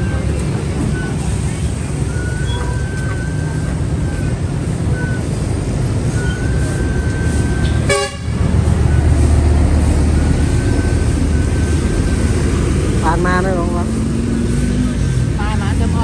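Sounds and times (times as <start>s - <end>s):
street traffic: 0.0s - 16.0s
vehicle engine running: 0.0s - 16.0s
car horn toot: 7.8s - 8.4s.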